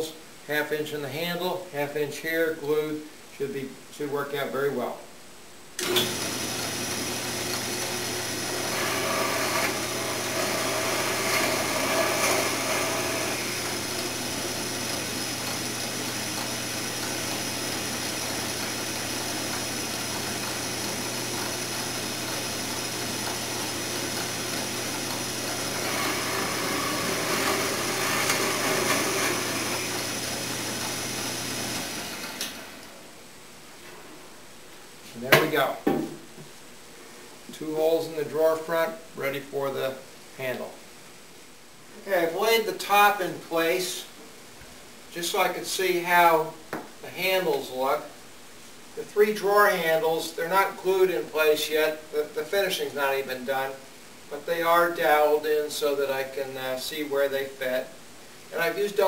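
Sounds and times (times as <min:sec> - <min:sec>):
drill bit boring into wood: 0:05.8 - 0:32.6
drill press motor running: 0:05.8 - 0:32.9
motor winding down: 0:05.8 - 0:32.9.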